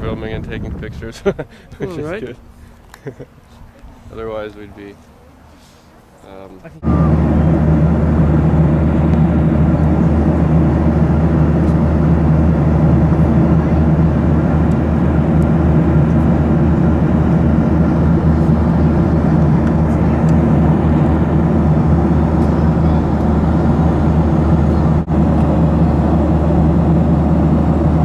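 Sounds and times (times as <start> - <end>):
airliner cabin engine hum: 6.4 - 28.0.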